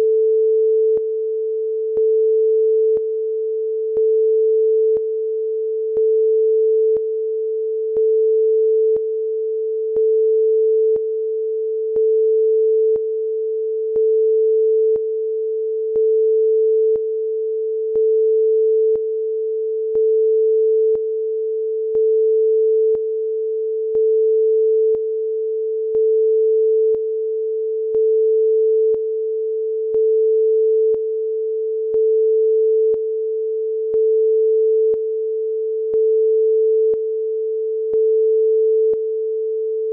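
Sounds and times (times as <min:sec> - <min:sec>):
sine-wave test tone: 0:00.0 - 0:39.9.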